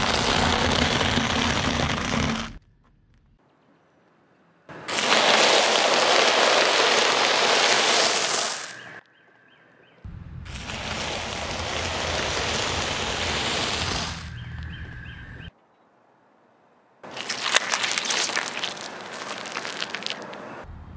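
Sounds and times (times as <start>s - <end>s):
cheese puffs crunching under tyre: 0.0s - 2.6s, 4.9s - 8.9s, 10.5s - 14.3s, 17.0s - 20.6s
low rumble: 10.0s - 15.5s, 20.6s - 20.9s.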